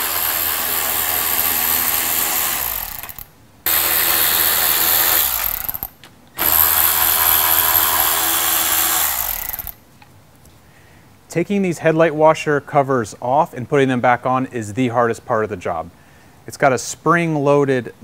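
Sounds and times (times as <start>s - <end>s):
power driver running: 0.0s - 9.8s.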